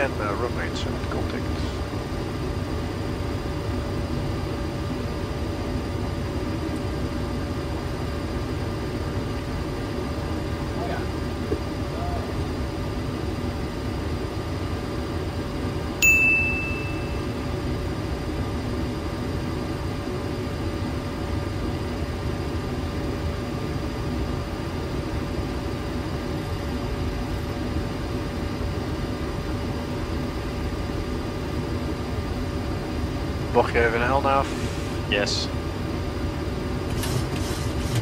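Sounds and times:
cockpit airflow rush with hum: 0:00.0 - 0:38.0
high chime: 0:16.0 - 0:17.3.

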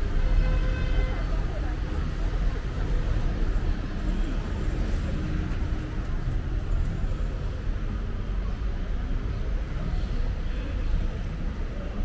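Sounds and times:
traffic noise with low rumble: 0:00.0 - 0:12.0.

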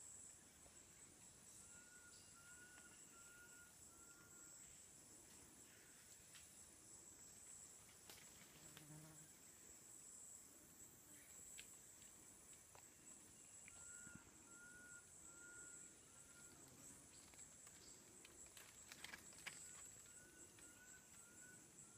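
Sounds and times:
high-pitched insect drone: 0:00.8 - 0:04.9, 0:13.4 - 0:18.0.

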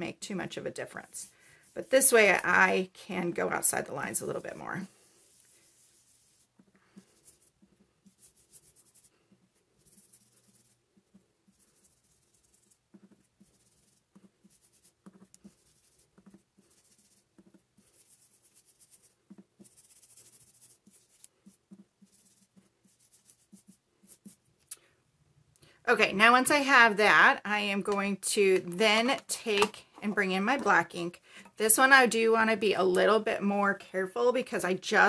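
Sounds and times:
stencil brush dabbing on paper: 0:00.1 - 0:24.7.

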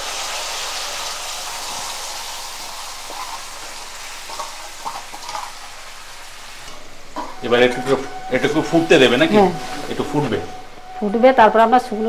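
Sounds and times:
liquid sizzling in hot oil: 0:00.0 - 0:11.0.

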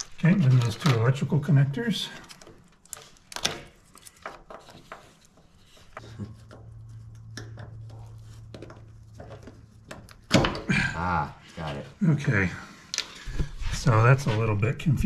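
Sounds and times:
plastic connectors clicking: 0:02.2 - 0:04.6.

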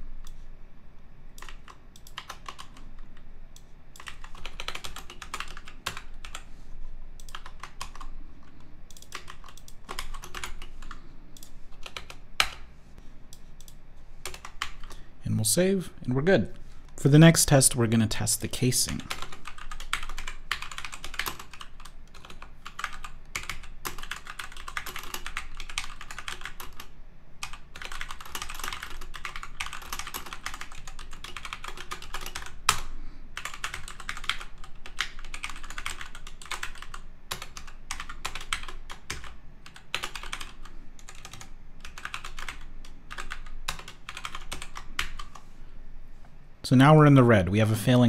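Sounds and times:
fast keyboard typing: 0:01.4 - 0:03.2, 0:03.9 - 0:06.5, 0:07.2 - 0:12.7, 0:13.6 - 0:15.0, 0:18.6 - 0:45.4.

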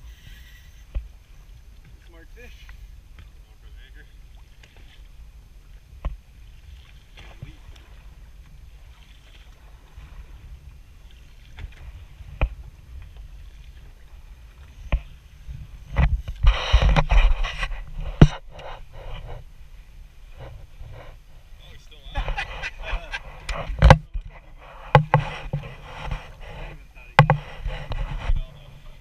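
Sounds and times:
water slapping boat hull: 0:00.0 - 0:29.0
wind on microphone: 0:04.3 - 0:29.0
splashing: 0:06.0 - 0:19.1
knocks on boat: 0:23.5 - 0:24.3, 0:24.9 - 0:26.2, 0:27.1 - 0:28.4.

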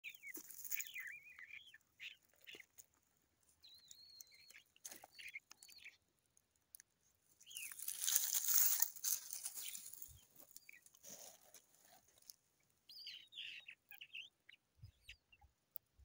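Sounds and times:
skunk snuffling and chewing: 0:00.0 - 0:16.0
high chirping squeaks: 0:07.4 - 0:10.9
rustling in leaf litter: 0:07.5 - 0:12.0.

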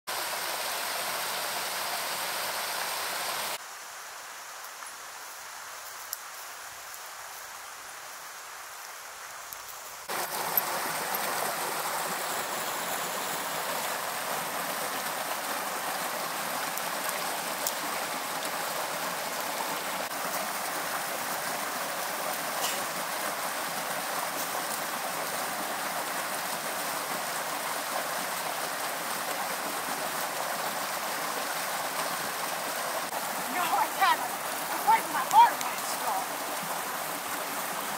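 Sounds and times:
whitewater rushing: 0:10.0 - 0:37.9.

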